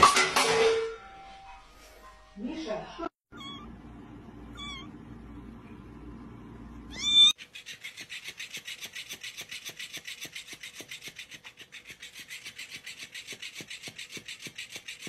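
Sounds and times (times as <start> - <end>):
low steady hum: 0.8 - 7.2
cat meowing: 3.3 - 3.7, 4.5 - 5.0, 6.9 - 7.4.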